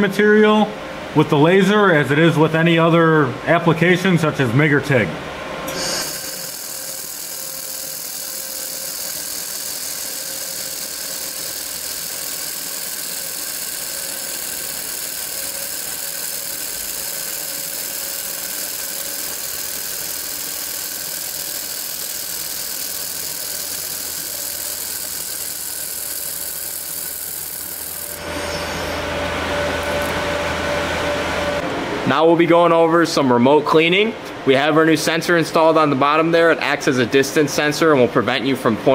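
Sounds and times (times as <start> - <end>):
laser welder hissing: 5.7 - 29.1
low hum: 28.2 - 32.1.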